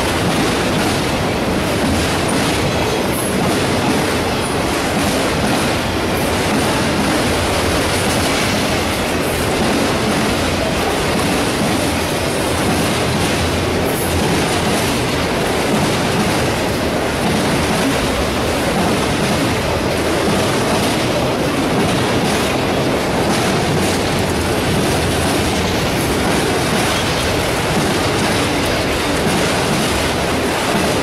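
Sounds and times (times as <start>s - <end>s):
freight train wheels on rails: 0.0s - 31.0s.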